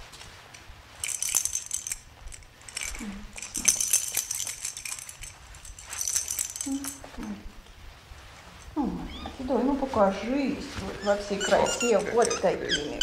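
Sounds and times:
plastic baby rattle shaken: 0.9s - 7.1s.

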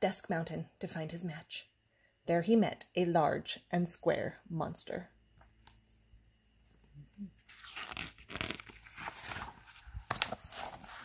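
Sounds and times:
paper page rustling: 7.5s - 11.0s.

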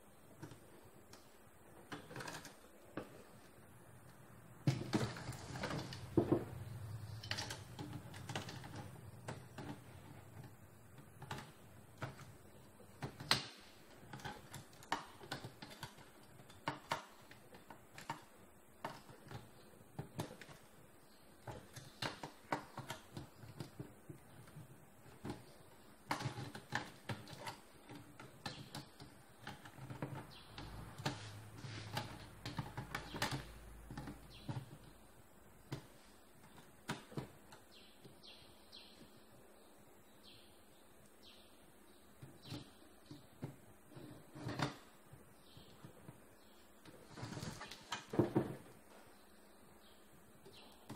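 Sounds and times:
clicks and knocks of parts: 0.3s - 35.0s.

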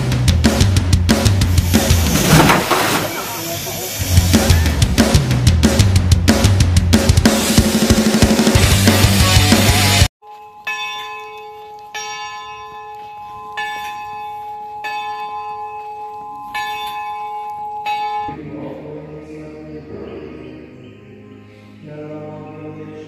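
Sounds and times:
loud drum-kit music: 0.0s - 3.3s, 4.0s - 10.1s
church bell ringing: 10.2s - 18.4s
chanting: 18.3s - 23.0s.

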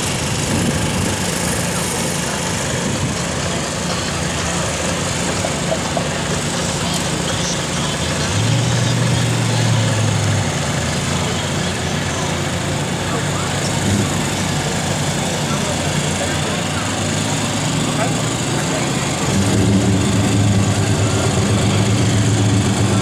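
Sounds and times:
low engine hum: 0.0s - 23.0s.

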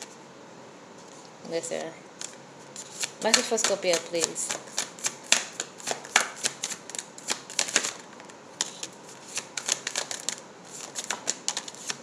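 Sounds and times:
cards being shuffled: 2.2s - 8.0s, 8.6s - 12.0s.

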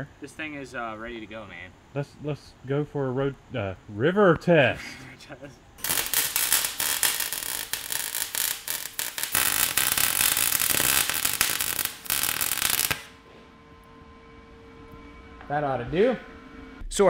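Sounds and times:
welder arc crackling: 5.8s - 13.2s.

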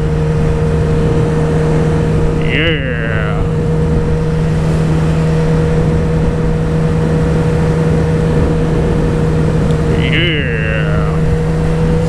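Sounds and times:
motorcycle engine cruising: 0.0s - 12.0s
wind noise: 0.0s - 12.0s.

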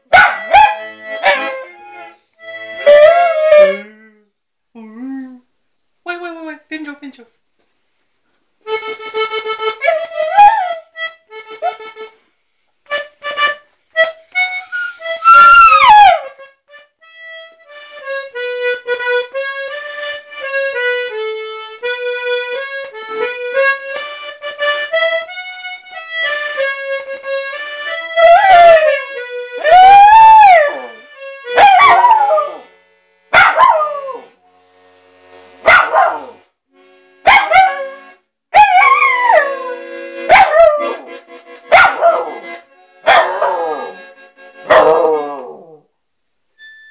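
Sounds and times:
instrument playing held notes: 0.0s - 4.2s, 8.7s - 12.2s, 16.7s - 35.7s, 36.3s - 38.2s, 39.3s - 45.5s, 46.6s - 46.9s
puppy howling: 2.8s - 4.2s, 9.8s - 11.0s, 14.8s - 16.3s, 28.2s - 29.0s, 29.6s - 31.0s, 31.6s - 32.6s, 38.6s - 41.0s, 43.1s - 44.0s, 44.7s - 45.8s.

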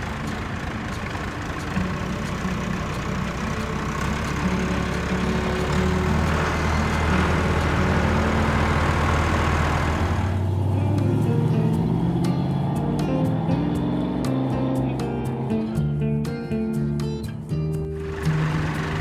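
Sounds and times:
tractor engine running: 0.0s - 17.2s, 17.8s - 19.0s.

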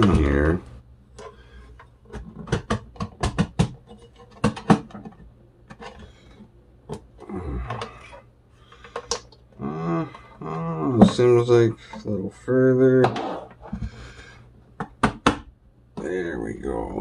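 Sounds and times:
hard plastic clicks and knocks: 2.1s - 5.2s.

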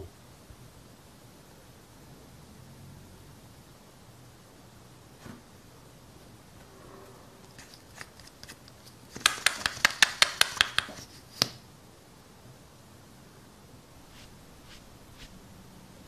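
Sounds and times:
plastic tube clicking: 7.6s - 11.6s.

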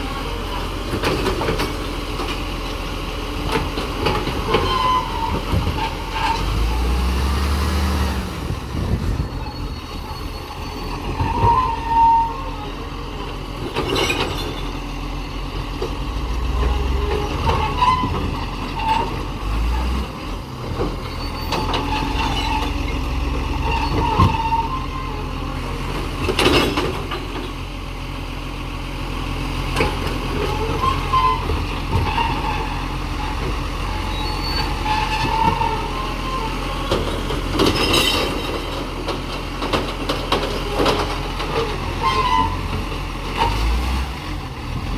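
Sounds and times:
diesel truck engine running: 0.0s - 44.9s
hydraulic arm and brake squeals: 4.1s - 6.6s, 9.2s - 12.9s, 16.6s - 19.2s, 21.0s - 25.4s, 30.4s - 36.9s, 37.7s - 38.5s, 40.6s - 43.7s.

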